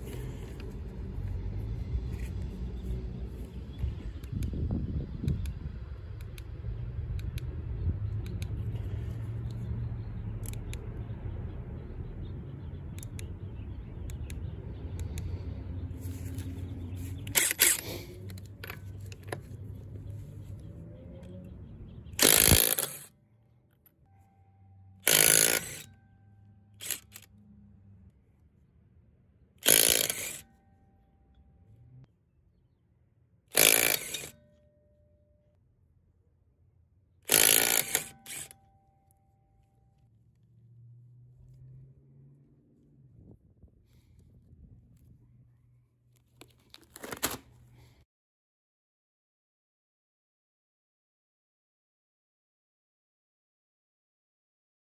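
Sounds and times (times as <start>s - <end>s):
impact wrench hammering: 25.1s - 25.9s, 33.6s - 34.4s, 37.3s - 38.5s.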